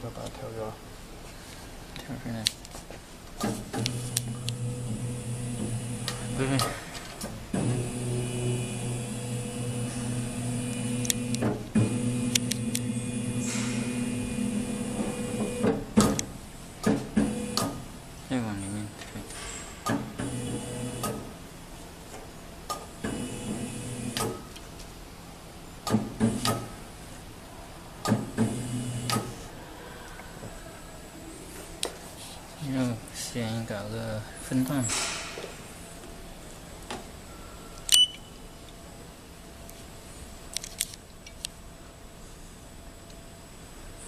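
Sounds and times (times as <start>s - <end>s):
motor whirring: 7.6s - 15.7s.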